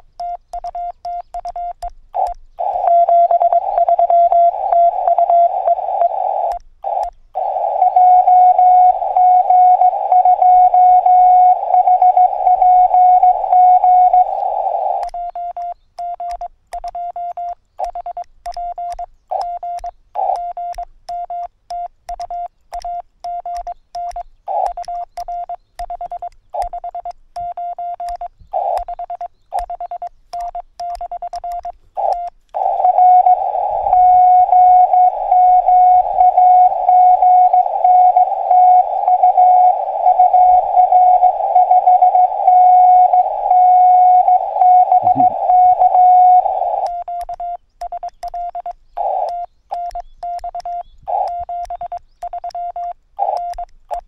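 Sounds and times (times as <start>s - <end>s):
morse code tone: 0.0s - 54.0s
radio hiss: 2.2s - 15.1s, 28.5s - 29.7s, 31.9s - 47.0s, 49.0s - 50.0s, 51.1s - 52.1s.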